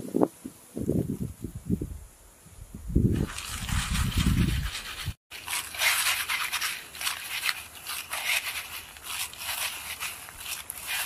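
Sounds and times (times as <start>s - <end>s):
chips rattling in a clay pot: 3.2s - 11.0s.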